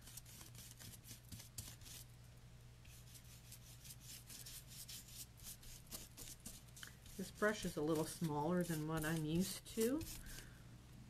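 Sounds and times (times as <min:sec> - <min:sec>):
paintbrush scratchy rubbing: 0:02.9 - 0:10.4.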